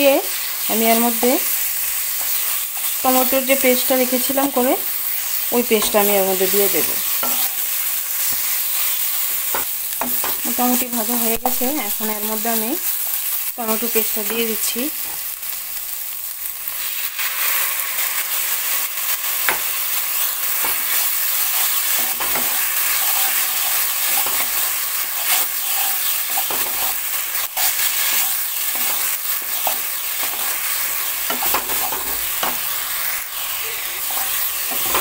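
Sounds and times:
paste sizzling in oil: 0.0s - 35.0s
spatula scraping pan: 20.2s - 35.0s.

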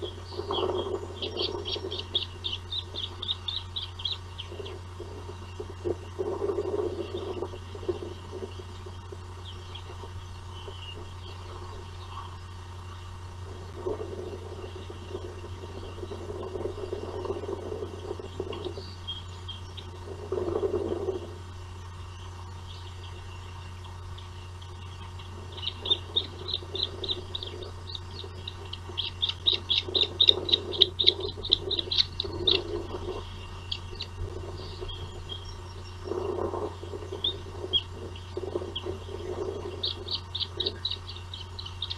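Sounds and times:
bird of prey high chirps: 0.0s - 4.8s, 22.1s - 36.1s, 36.8s - 41.9s
low rushing noise: 0.0s - 41.9s
steady low hum: 0.0s - 41.9s.

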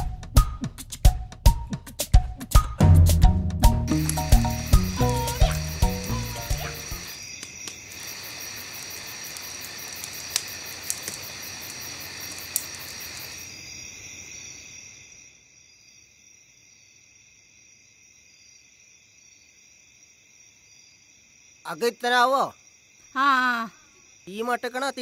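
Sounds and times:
fire popping: 3.8s - 13.6s
wood fire hissing: 3.9s - 14.7s
crickets chirping: 3.9s - 25.0s.

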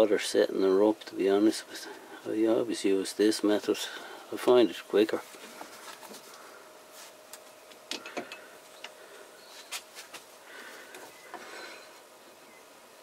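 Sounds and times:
soft rubbing: 5.1s - 7.3s.

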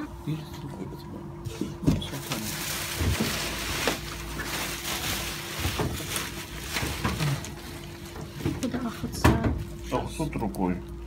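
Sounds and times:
bubble wrap rustling: 2.0s - 9.9s.

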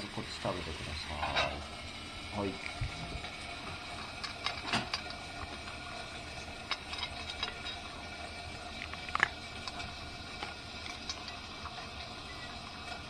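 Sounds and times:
dog licking a metal bowl: 8.7s - 13.0s.

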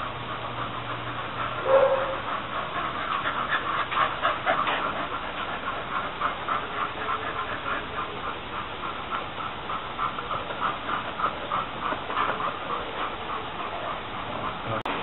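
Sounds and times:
dog panting: 0.0s - 15.0s
dog whining: 1.4s - 8.2s.

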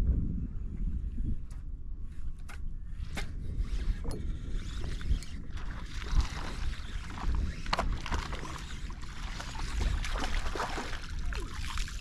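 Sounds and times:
wind rumbling on microphone: 0.0s - 12.0s
water lapping at kayak hull: 4.9s - 12.0s
fish splashing: 5.6s - 12.0s.

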